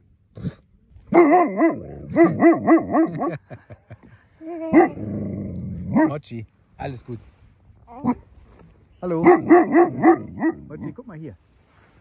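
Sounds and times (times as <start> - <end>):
large dog barking: 1.1 - 3.4, 4.7 - 6.2, 9.2 - 10.9.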